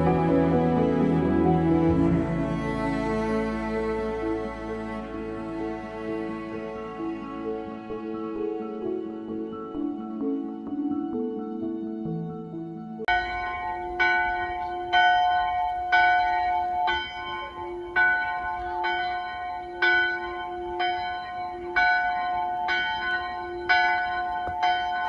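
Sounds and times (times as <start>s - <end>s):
church bells ringing: 0.0s - 10.8s, 13.0s - 25.0s.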